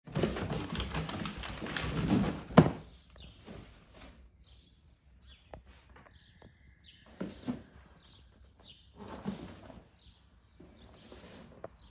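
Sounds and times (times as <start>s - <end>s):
cardboard scraping and rustling: 0.1s - 4.2s, 8.9s - 10.0s, 10.6s - 11.8s.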